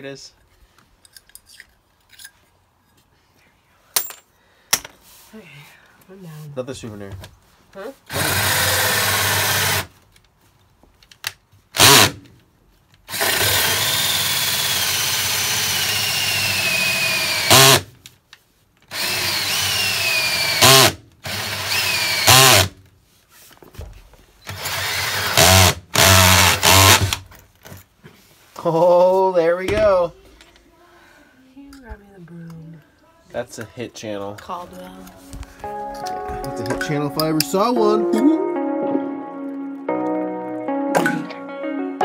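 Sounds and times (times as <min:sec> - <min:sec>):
drill with hole saw cutting wood: 0:08.1 - 0:09.9, 0:11.8 - 0:12.2, 0:13.1 - 0:17.9, 0:18.9 - 0:22.8, 0:24.5 - 0:27.2.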